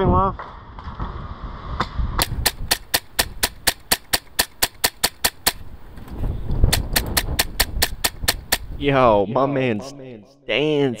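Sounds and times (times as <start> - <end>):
wind rumble on microphone: 0.0 - 3.7, 5.4 - 8.9
airsoft rifle shots: 2.2 - 5.7, 6.7 - 8.7.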